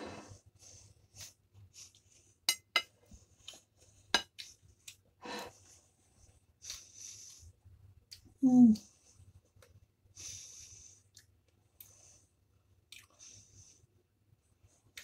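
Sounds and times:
fork clinking on plate: 2.5 - 2.9
nasal breathing: 10.2 - 11.1.

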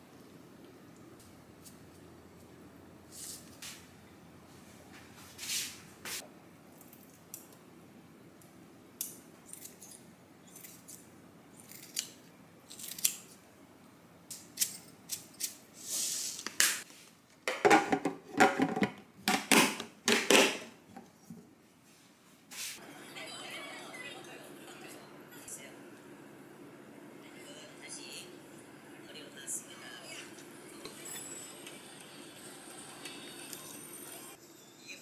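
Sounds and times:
lid knocking on steel container: 17.5 - 20.6.

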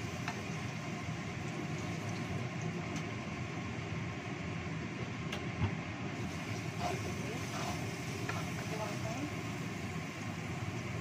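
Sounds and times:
paste sizzling in hot oil: 6.2 - 11.0.

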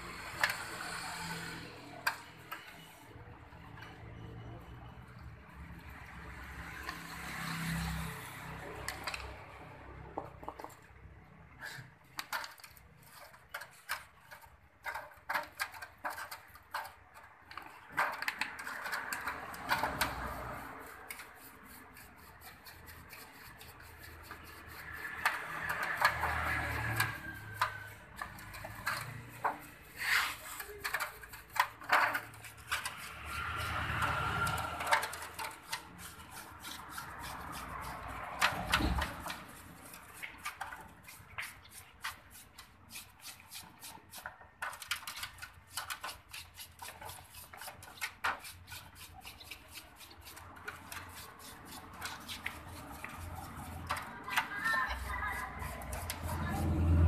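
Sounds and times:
brush scrubbing metal engine parts: 0.0 - 4.1, 4.8 - 57.0.

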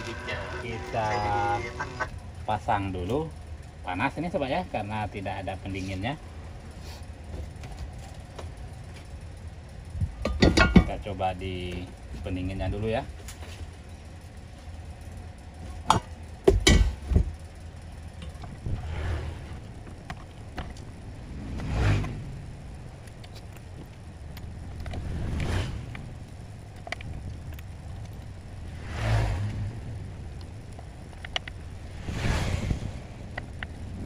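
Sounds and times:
low steady hum: 0.0 - 34.0
whooshing noise: 18.6 - 19.8, 21.0 - 22.9, 24.8 - 26.2, 28.6 - 30.3, 31.8 - 34.0
metal clicks and clatter: 23.0 - 28.3.

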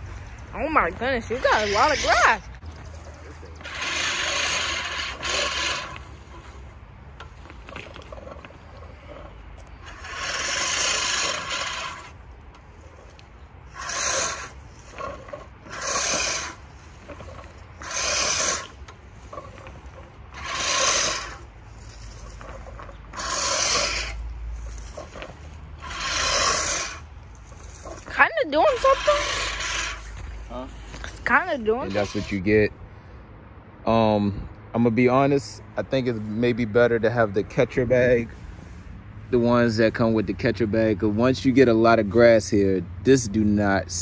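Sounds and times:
reel mower blades cutting grass: 0.0 - 32.6.

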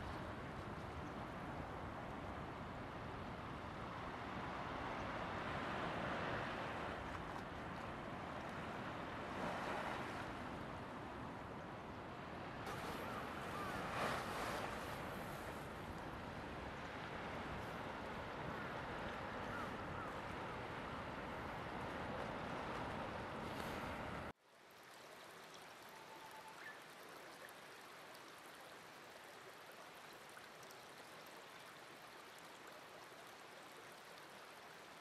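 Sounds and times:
small waves washing on sand: 3.4 - 11.4, 12.1 - 24.4.

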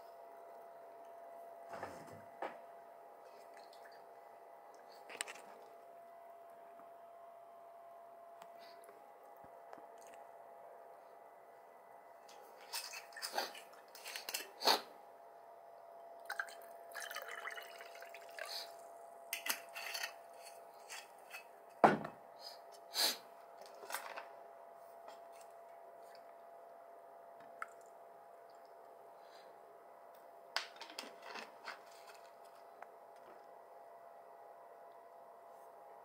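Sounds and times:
liquid pouring into glass: 16.3 - 18.5
drink fizzing: 16.3 - 18.7
bottle thumping on table: 21.8 - 22.2.

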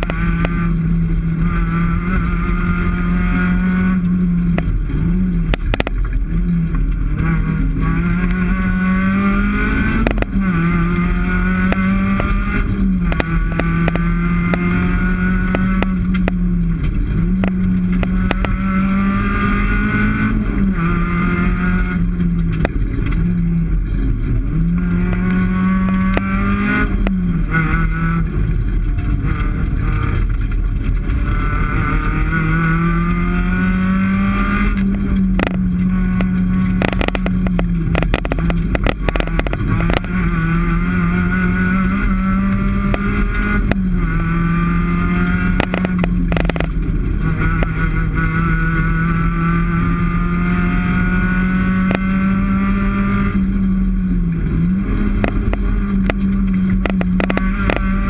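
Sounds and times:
rally car engine revving: 0.0 - 58.0
sharp knocks and clacks: 5.4 - 6.2, 9.9 - 11.0, 11.6 - 14.7, 15.4 - 19.2, 34.1 - 43.9, 45.6 - 47.8, 55.1 - 58.0.

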